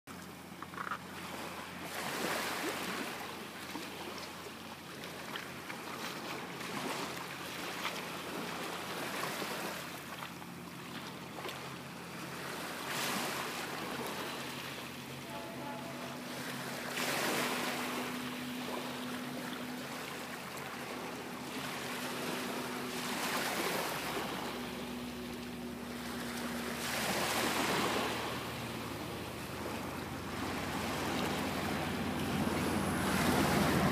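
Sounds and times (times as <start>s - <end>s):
approaching train rumble: 15.2s - 33.9s.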